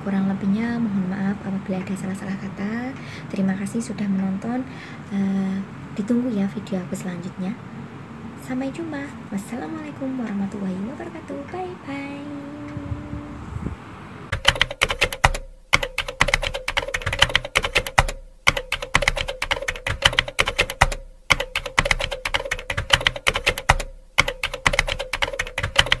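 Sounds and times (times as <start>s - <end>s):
computer keyboard typing: 14.3s - 26.0s.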